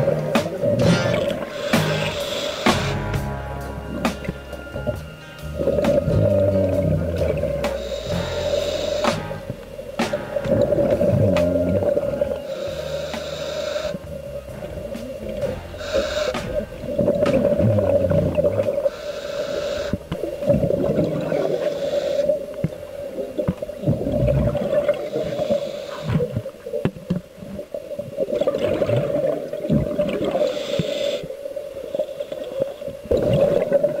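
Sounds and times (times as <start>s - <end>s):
regulator hissing inhalation: 0.0s - 3.2s, 4.0s - 10.3s, 11.2s - 16.7s, 17.7s - 20.5s, 21.2s - 22.6s, 24.8s - 26.4s, 30.3s - 32.7s
exhaust bubbles bubbling: 0.0s - 19.0s, 19.9s - 21.7s, 22.4s - 30.5s, 33.0s - 34.0s
steady hum: 0.0s - 34.0s.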